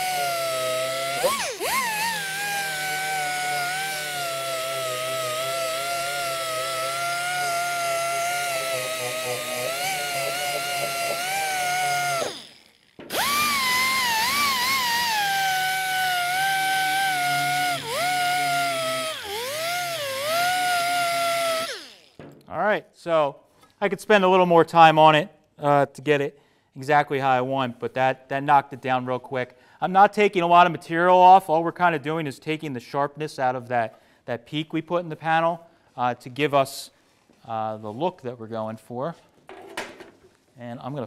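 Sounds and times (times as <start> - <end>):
orbital sander whining: 0.0 - 22.2.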